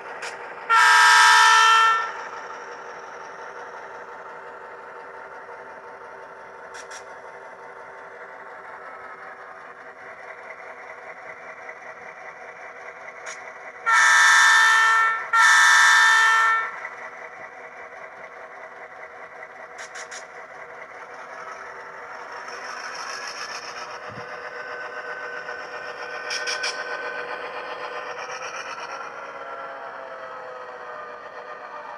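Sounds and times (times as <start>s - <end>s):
diesel engine sound from speaker: 0.0s - 31.9s
train horn blasts: 0.7s - 2.3s, 13.8s - 16.8s.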